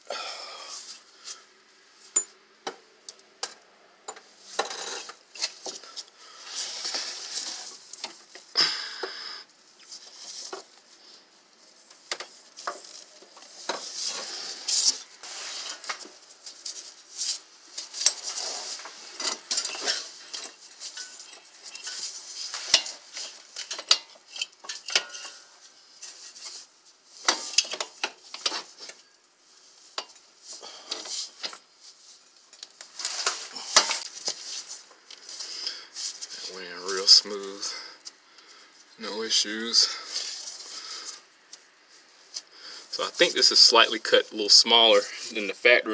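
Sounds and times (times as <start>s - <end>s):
metallic clicks and scrapes: 3.1s - 8.2s, 11.9s - 29.0s.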